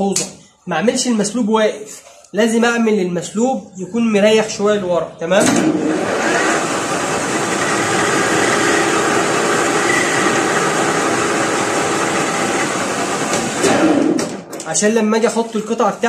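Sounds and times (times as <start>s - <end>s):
metal lathe running: 5.9s - 13.6s.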